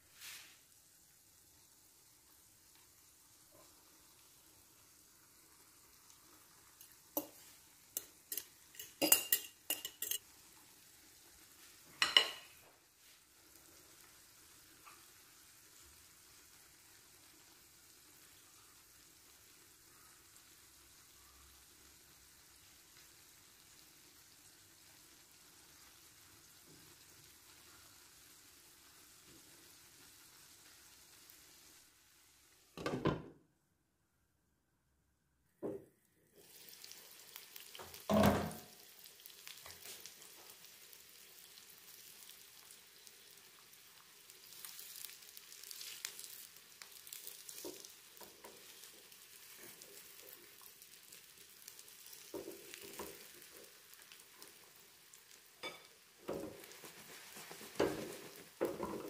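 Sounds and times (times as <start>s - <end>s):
potato mixture sizzling in oil: 0.0s - 32.8s, 36.0s - 59.0s
metal fork scraping and tapping pan: 6.8s - 10.3s, 55.6s - 55.9s
glass lid knocking onto pan: 38.1s - 38.6s.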